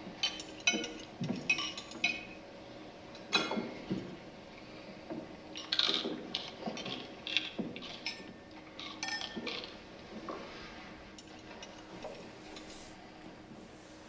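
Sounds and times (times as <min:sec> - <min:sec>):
dishes and cutlery clinking: 0:00.2 - 0:02.3, 0:05.6 - 0:09.8.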